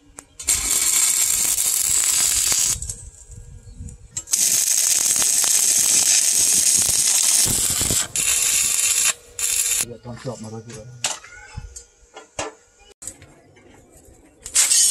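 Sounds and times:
welding arc crackling and hissing: 0:00.4 - 0:03.4, 0:04.2 - 0:09.9, 0:14.5 - 0:14.9.

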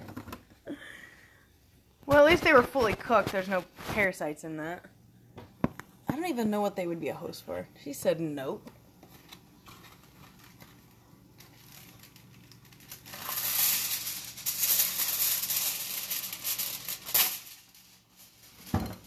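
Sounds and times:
aluminum foil crinkling: 0:09.0 - 0:19.0
foil ripping: 0:09.2 - 0:18.8.

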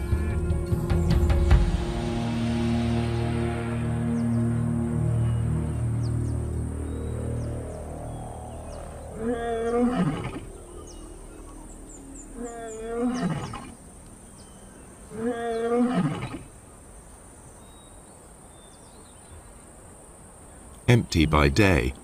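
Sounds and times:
lioness roaring: 0:09.1 - 0:10.6.

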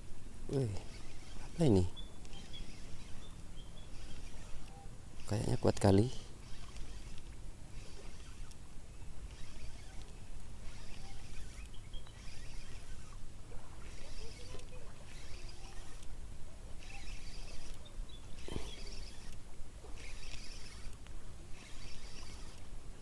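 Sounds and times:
fishing reel cranking: 0:00.5 - 0:22.7.

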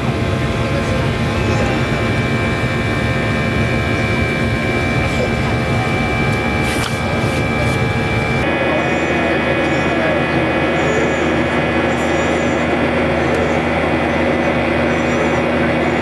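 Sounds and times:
jet engines heard from cabin: 0:00.0 - 0:16.0.

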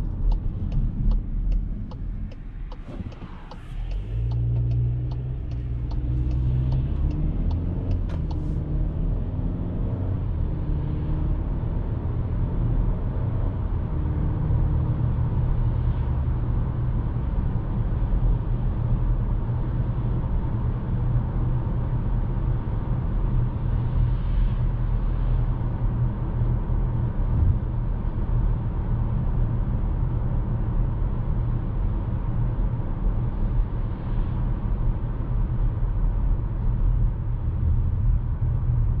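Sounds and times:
sharp ticks: 0:00.2 - 0:08.4
tyre and road noise: 0:27.2 - 0:28.0.

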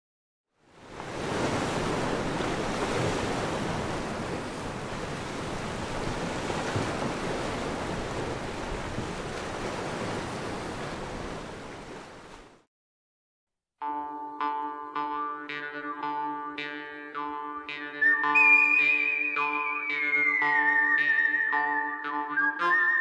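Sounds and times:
sea surf washing onto beach: 0:00.8 - 0:12.6.

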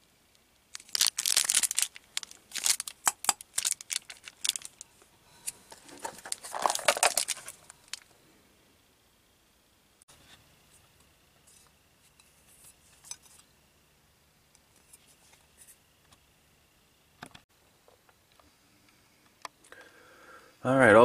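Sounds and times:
plastic package rustling: 0:00.7 - 0:04.9, 0:05.5 - 0:08.1.

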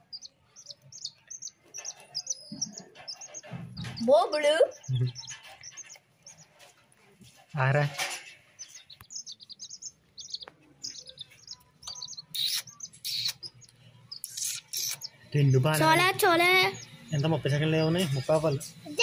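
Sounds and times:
chicks peeping: 0:00.0 - 0:19.0.

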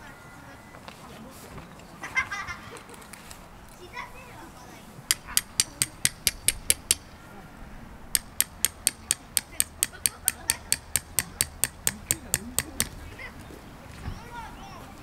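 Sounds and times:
hammer striking metal tent peg: 0:05.1 - 0:07.2, 0:08.2 - 0:13.0.

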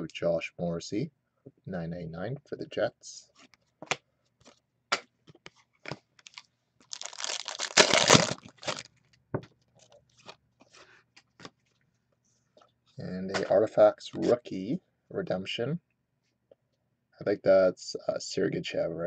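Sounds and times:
plastic wrapper crinkling and tearing: 0:05.8 - 0:09.2.

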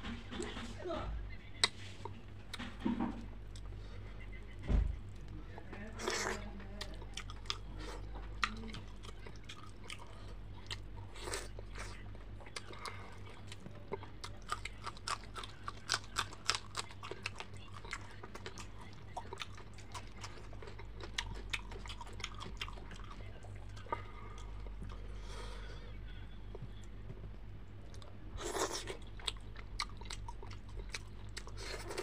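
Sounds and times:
low steady hum: 0:00.0 - 0:32.0
chewing crunchy food: 0:05.1 - 0:25.2, 0:26.5 - 0:32.0.

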